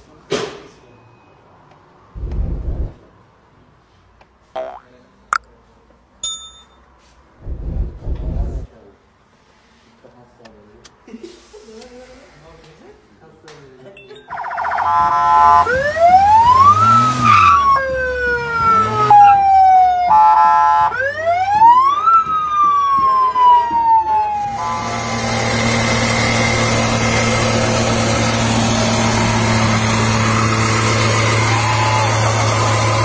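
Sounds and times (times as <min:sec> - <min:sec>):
electronic siren wailing: 0:14.3 - 0:20.4.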